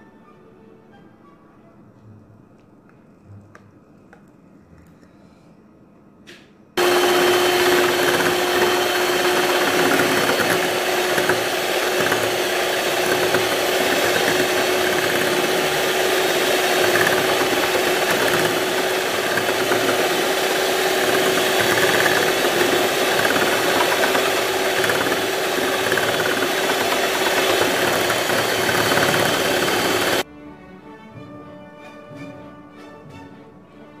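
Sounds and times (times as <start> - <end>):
electric hand mixer running: 6.8 - 30.2.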